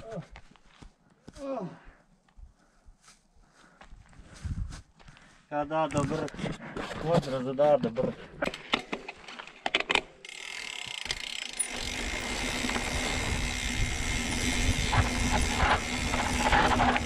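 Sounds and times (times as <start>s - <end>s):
tyre and wind noise: 4.0s - 5.1s, 11.7s - 17.0s
bike clicks and rattles: 8.4s - 17.0s.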